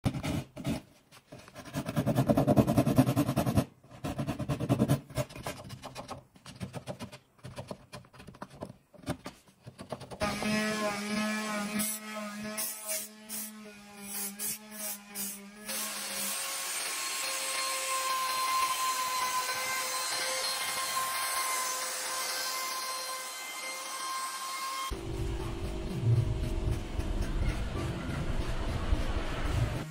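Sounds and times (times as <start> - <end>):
electric power tool running: 10.2 - 12.0, 15.5 - 25.9
hand saw cutting wood: 10.2 - 24.9.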